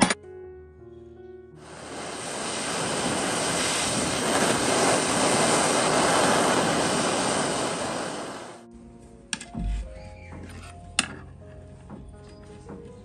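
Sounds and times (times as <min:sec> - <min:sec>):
gas torch flame hissing: 0:01.6 - 0:08.6.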